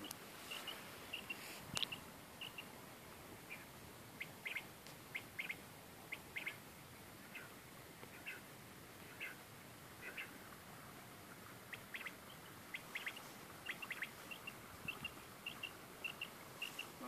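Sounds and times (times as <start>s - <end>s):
bird chirping: 0.4s - 2.7s, 3.5s - 6.6s, 9.1s - 9.4s, 10.0s - 10.4s, 11.7s - 17.0s.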